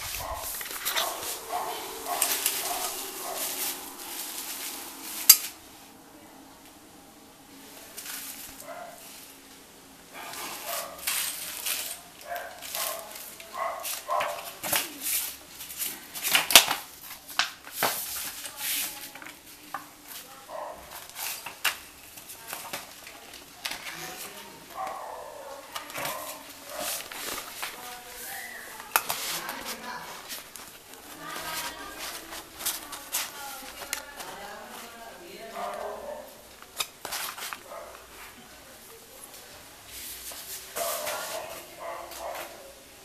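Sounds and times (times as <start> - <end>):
plastic and bubble wrap crinkling: 0.0 - 5.6, 10.2 - 42.7.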